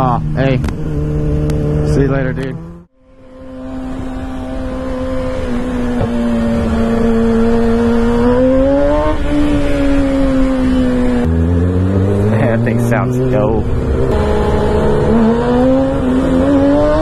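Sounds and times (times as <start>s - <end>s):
motorcycle engine running: 0.0s - 17.0s
deeper engine note: 10.2s - 17.0s.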